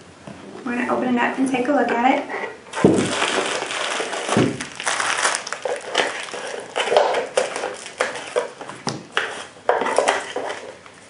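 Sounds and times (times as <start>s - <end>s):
bubble wrap crinkling: 2.7s - 8.7s.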